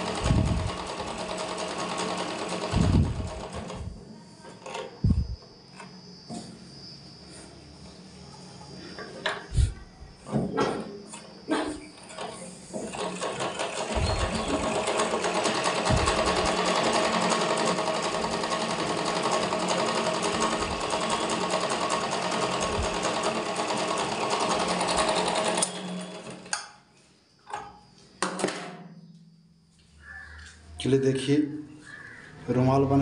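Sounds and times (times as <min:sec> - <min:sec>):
sewing machine running: 0:00.0 - 0:04.0, 0:04.6 - 0:05.4, 0:12.0 - 0:26.6.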